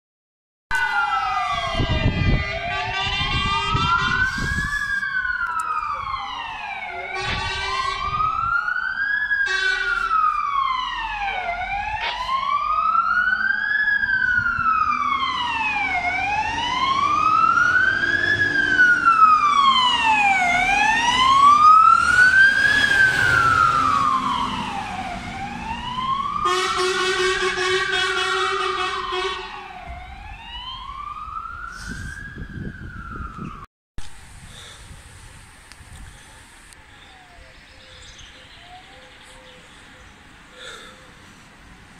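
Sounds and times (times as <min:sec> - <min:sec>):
wailing fire engine sirens: 0:00.7 - 0:33.7, 0:34.3 - 0:41.9
air horn blasts: 0:02.0 - 0:04.5, 0:06.8 - 0:08.3, 0:09.4 - 0:10.2, 0:26.4 - 0:29.6.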